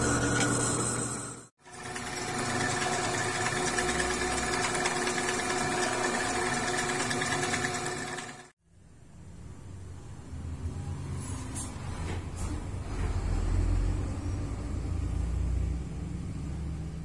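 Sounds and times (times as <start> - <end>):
drill press motor hum: 0.0 - 8.5.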